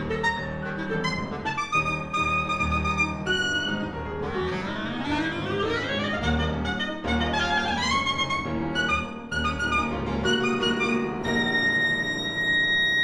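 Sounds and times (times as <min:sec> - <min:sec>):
clarinet playing: 0:00.0 - 0:13.0
piano chords: 0:00.0 - 0:13.0.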